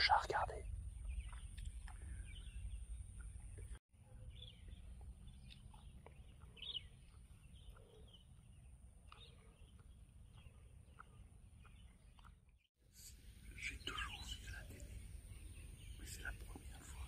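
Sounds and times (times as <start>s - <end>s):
faint bird chirps: 13.0s - 17.0s.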